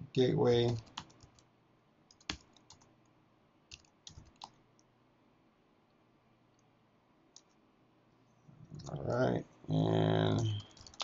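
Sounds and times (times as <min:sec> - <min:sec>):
keyboard keystrokes: 0:10.4 - 0:11.0.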